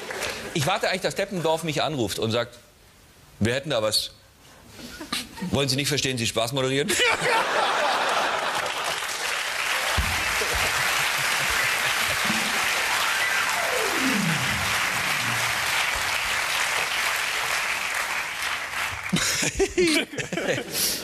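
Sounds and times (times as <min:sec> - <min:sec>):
audience applauding: 0:07.6 - 0:19.6
tone sliding down in pitch: 0:12.2 - 0:15.7.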